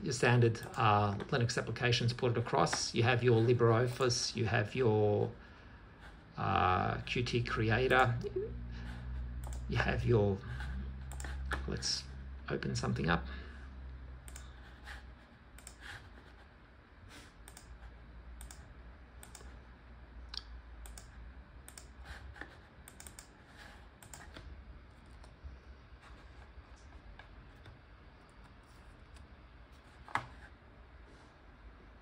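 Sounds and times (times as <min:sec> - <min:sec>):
keyboard and mouse clicks: 0:09.4 - 0:09.7, 0:11.1 - 0:11.7, 0:14.2 - 0:14.5, 0:15.6 - 0:16.0, 0:17.4 - 0:17.8, 0:18.4 - 0:19.6, 0:20.3 - 0:23.3, 0:24.0 - 0:25.4.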